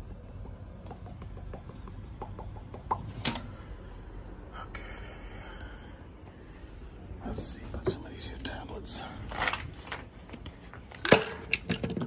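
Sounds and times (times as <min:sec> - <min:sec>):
steady low hum: 0:00.0 - 0:12.0
hands tapping on sheet metal: 0:00.2 - 0:03.0.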